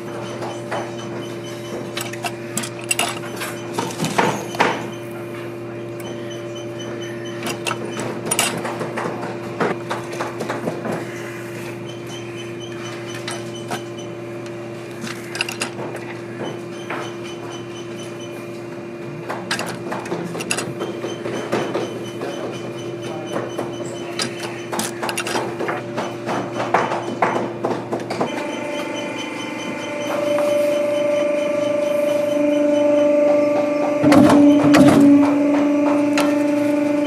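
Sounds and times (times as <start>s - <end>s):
bench press clicks and metal clacks: 0.0s - 5.0s, 7.2s - 10.9s, 15.0s - 18.2s, 19.3s - 28.6s
steady hum: 28.1s - 37.0s.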